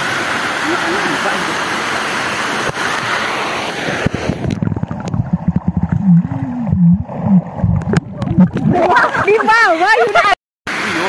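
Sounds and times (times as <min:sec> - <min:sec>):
water rushing: 0:00.0 - 0:11.0
underwater gurgling and bubbling: 0:03.9 - 0:09.1.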